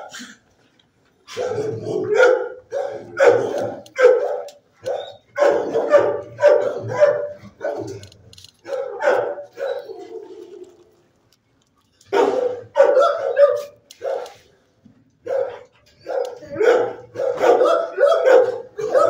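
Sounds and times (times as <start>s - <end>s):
dog barking: 1.3s - 8.0s, 8.6s - 10.5s, 12.1s - 14.4s, 15.2s - 19.0s.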